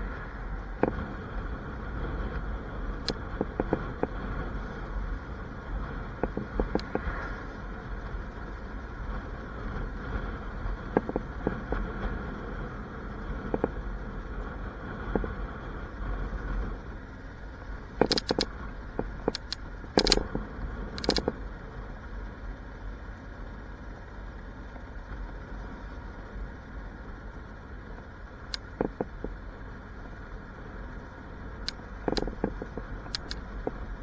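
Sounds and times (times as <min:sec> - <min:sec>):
wind rumble: 0:00.0 - 0:34.0
sharp clicks and knocks: 0:03.0 - 0:04.2, 0:06.2 - 0:07.1, 0:10.9 - 0:11.8, 0:13.5 - 0:13.8, 0:18.0 - 0:20.4, 0:21.0 - 0:21.4, 0:28.5 - 0:29.4, 0:31.6 - 0:33.8.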